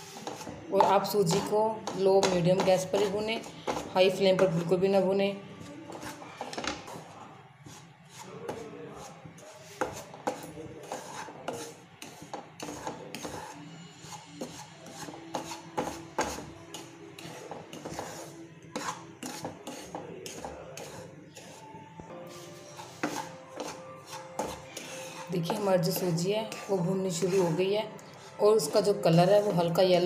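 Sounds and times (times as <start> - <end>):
wooden spatula scraping a pan: 0.0 - 4.8, 5.6 - 21.6, 22.2 - 30.0.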